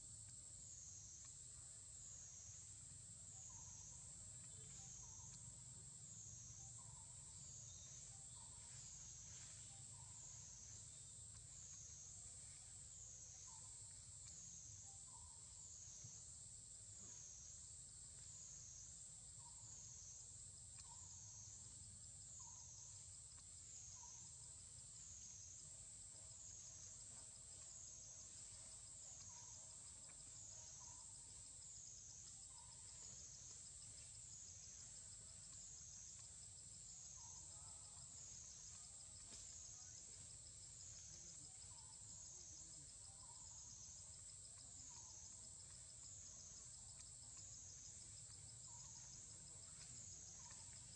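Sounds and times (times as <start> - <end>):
high-pitched insect drone: 0.7 - 16.3.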